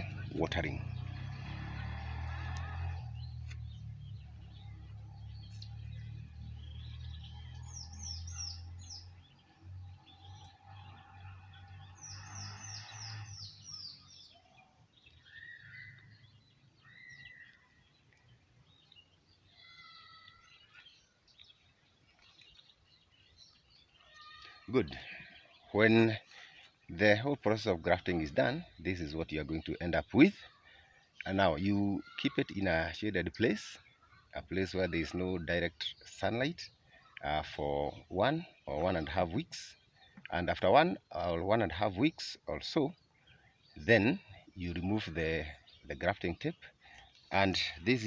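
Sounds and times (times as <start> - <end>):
birds chirping: 0.0 - 48.0.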